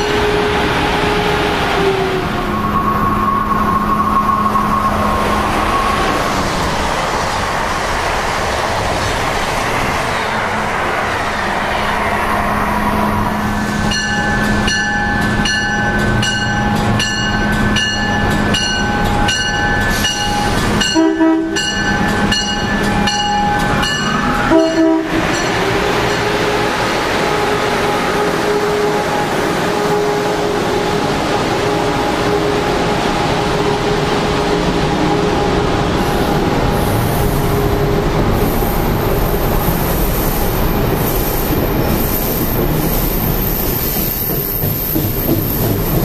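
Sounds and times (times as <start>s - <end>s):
train horn blasts: 0.0s - 1.8s, 20.9s - 21.8s, 24.2s - 35.6s
rumble and hum of passing train: 0.0s - 46.0s
locomotive bell ringing: 13.3s - 31.0s.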